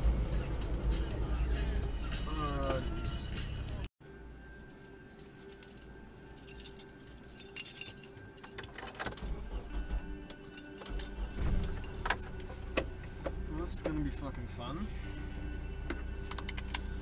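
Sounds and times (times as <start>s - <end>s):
low engine rumble: 0.0s - 4.2s, 9.1s - 17.0s
metal jangling and rattling: 4.6s - 12.9s.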